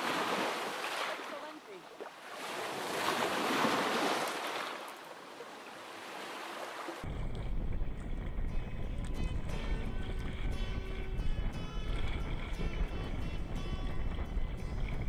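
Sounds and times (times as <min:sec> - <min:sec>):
waves washing over rocky beach: 0:00.0 - 0:07.1
heavy low rumble: 0:07.1 - 0:15.0
music: 0:07.4 - 0:15.0.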